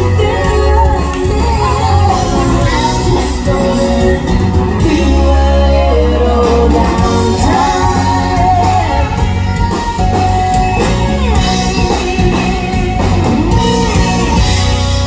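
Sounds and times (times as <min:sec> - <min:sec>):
woman singing: 0:00.0 - 0:10.0
drums: 0:00.0 - 0:15.0
electric guitar: 0:00.0 - 0:15.0
heavy bass: 0:00.0 - 0:15.0.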